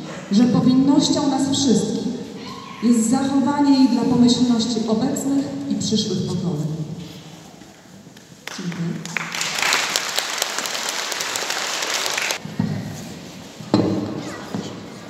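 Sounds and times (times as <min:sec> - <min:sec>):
audience applauding: 0:08.4 - 0:12.4.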